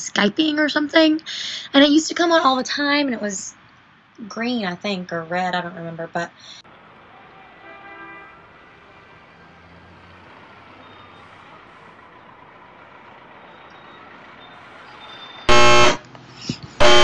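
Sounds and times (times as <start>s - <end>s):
harsh blaring tone: 15.5s - 16.0s, 16.8s - 17.0s.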